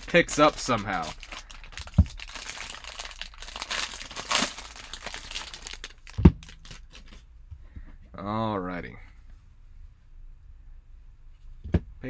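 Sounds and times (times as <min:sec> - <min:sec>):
foil wrapper tearing and crinkling: 0:00.0 - 0:07.1.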